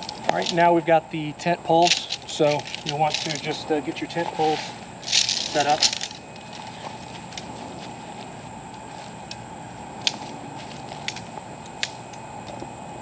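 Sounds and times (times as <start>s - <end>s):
tent poles clicking together: 0.0s - 0.6s, 1.8s - 3.5s, 5.1s - 6.2s
high even whine: 0.0s - 13.0s.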